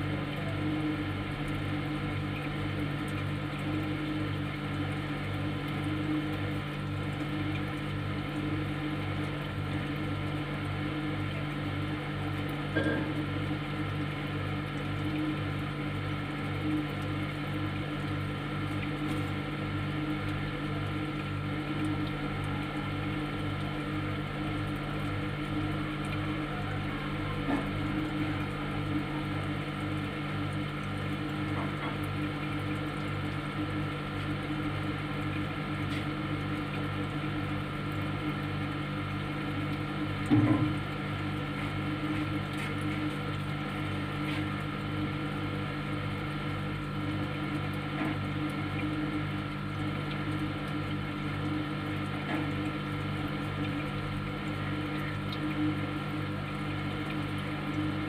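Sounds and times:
refrigerator humming: 0.0 - 58.0
brief knock: 40.3 - 40.8.

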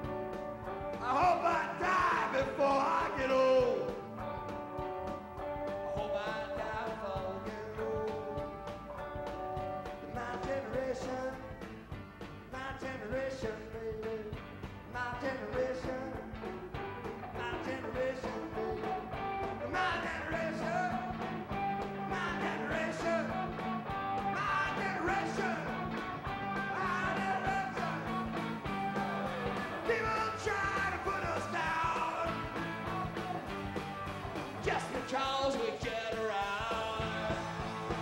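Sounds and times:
rock band playing live: 0.0 - 38.0
man singing: 1.0 - 4.2, 5.8 - 8.8, 9.9 - 11.8, 12.5 - 21.3, 21.9 - 23.6, 24.2 - 28.4, 29.8 - 32.6, 34.6 - 38.0.

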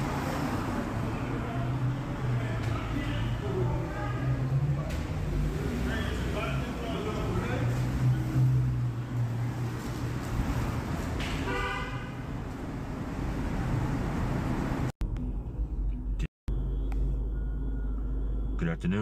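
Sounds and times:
street traffic noise: 0.0 - 19.0
car horn: 11.3 - 12.3
low hum: 15.0 - 19.0.

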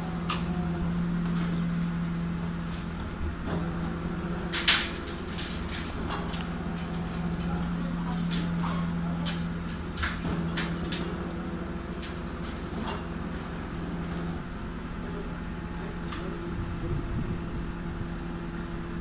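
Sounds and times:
garbage truck engine humming: 0.0 - 19.0
carts and bags clanking on metal: 4.5 - 11.2.

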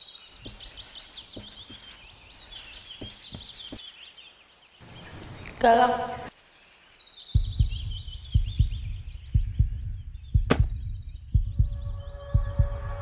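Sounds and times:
high chirping: 0.2 - 3.8, 7.3 - 13.0
heartbeat thumps: 7.3 - 13.0.

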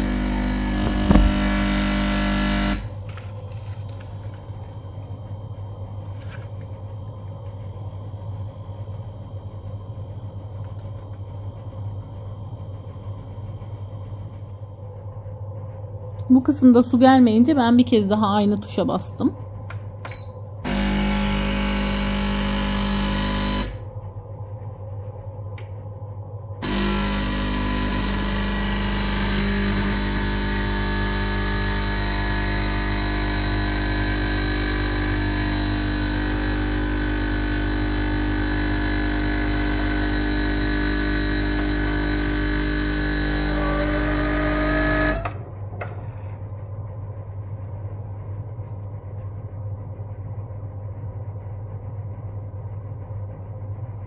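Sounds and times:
espresso machine pump buzzing: 0.0 - 4.5, 20.6 - 23.9, 26.6 - 46.4.

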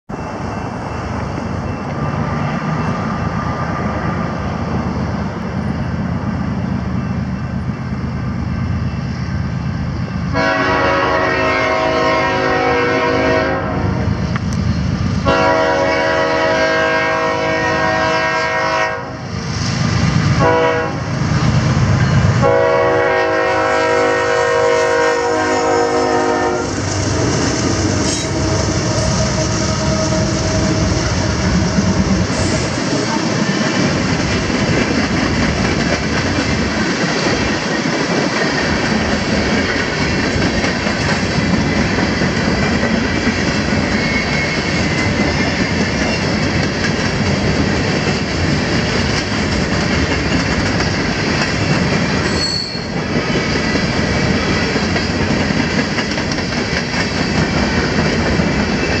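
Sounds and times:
diesel locomotive engines rumbling: 0.1 - 59.0
train air horn blasts: 10.3 - 14.2, 15.2 - 19.3, 20.4 - 21.1, 22.3 - 27.4, 28.0 - 33.3.

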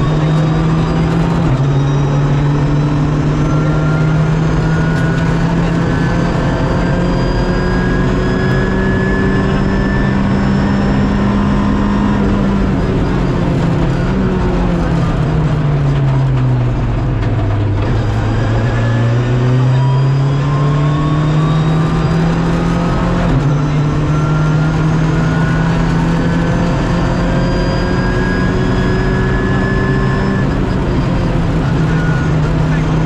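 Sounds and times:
gearshift: 0.0 - 33.0
rally car engine revving: 0.0 - 33.0.

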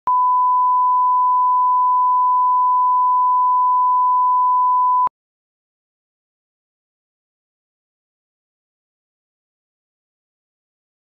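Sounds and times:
steady test tone beep: 0.1 - 5.1.

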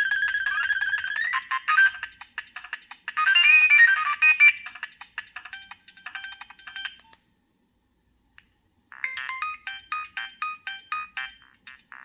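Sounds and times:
phone ringtone beeping melody: 0.0 - 2.4, 3.0 - 7.0, 8.9 - 12.0
quick repeated beeping tune: 9.0 - 12.0.

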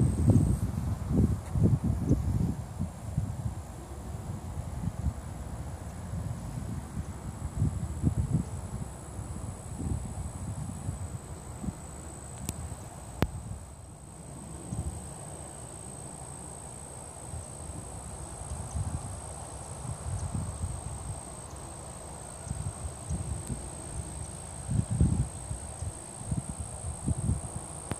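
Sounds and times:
high-pitched insect trill: 0.0 - 27.9.

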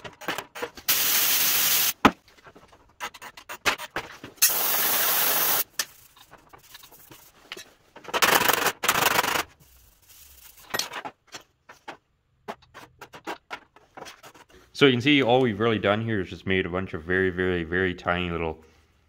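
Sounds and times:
compressed air blow gun hissing: 0.9 - 2.0, 4.4 - 5.6.

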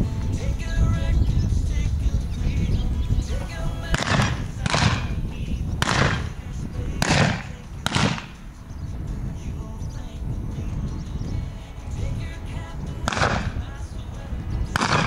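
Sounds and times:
song playing in background: 0.0 - 15.0
blank gunshots: 3.9 - 5.2, 5.8 - 8.4, 13.1 - 13.7, 14.7 - 15.0.

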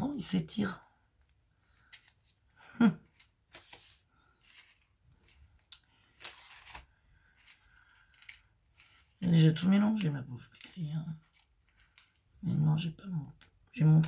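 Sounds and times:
paper rustling and sliding: 3.1 - 9.4, 10.5 - 12.3.

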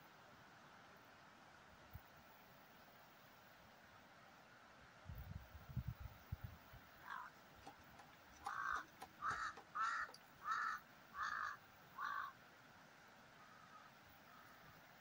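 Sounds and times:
crow cawing: 7.0 - 7.4, 8.4 - 12.4, 13.4 - 14.6.

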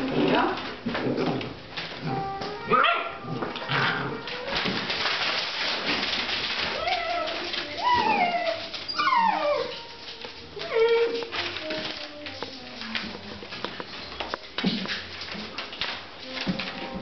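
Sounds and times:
rustling and scuffling: 0.0 - 17.0
puppies whining: 6.4 - 13.0.

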